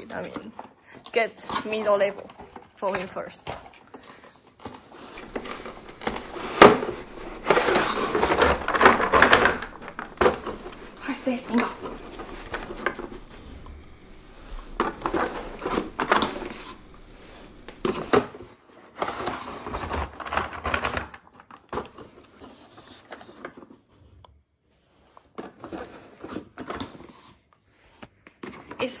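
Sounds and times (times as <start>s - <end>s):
cardboard packaging rustling: 1.5s - 23.9s.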